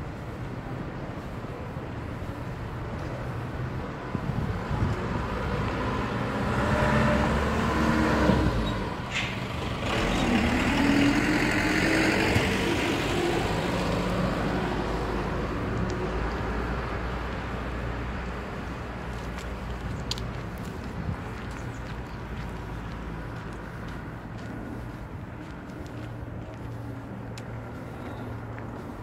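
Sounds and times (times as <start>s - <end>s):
motor vehicle passing by: 4.3s - 17.8s.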